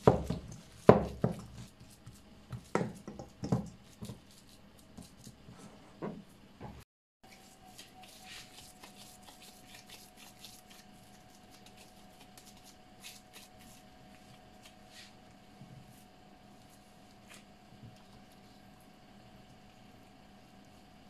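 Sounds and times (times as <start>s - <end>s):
hands patting mashed potato: 0.0s - 4.3s
faint steady hum: 0.0s - 21.0s.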